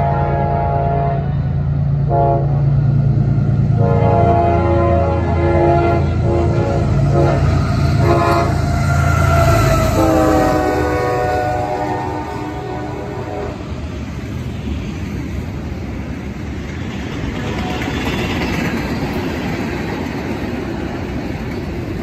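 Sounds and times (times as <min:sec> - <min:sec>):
locomotive horn blasts: 0:00.0 - 0:01.4, 0:02.0 - 0:02.7, 0:03.8 - 0:13.7.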